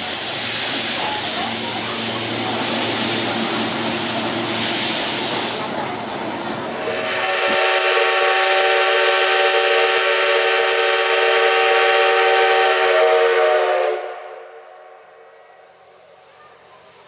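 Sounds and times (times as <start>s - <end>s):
steam hissing: 0.0s - 14.4s
steam locomotive whistle: 6.8s - 14.9s.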